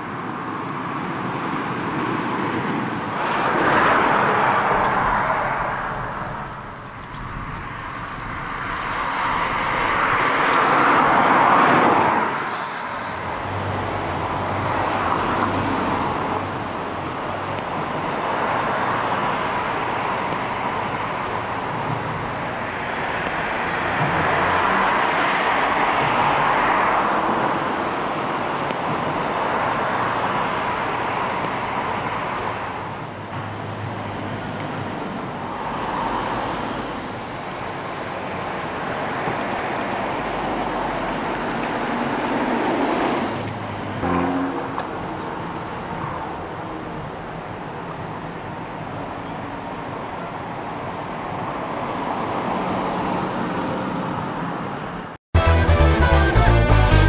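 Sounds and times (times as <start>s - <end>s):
car driving past on wet road: 3.1s - 16.9s, 22.8s - 27.6s.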